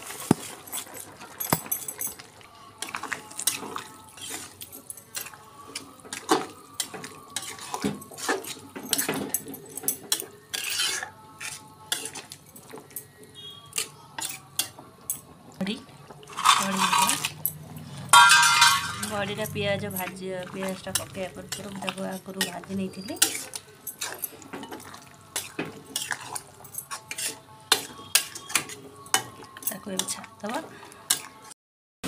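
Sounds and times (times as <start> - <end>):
metal spatula scraping a pan: 3.3 - 4.6, 5.2 - 12.4, 13.4 - 14.8, 16.2 - 20.1, 20.7 - 30.2.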